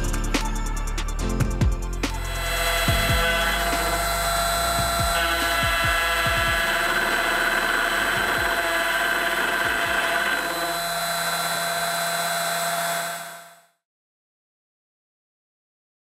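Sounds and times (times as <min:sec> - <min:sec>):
router motor whine: 0:02.2 - 0:13.8.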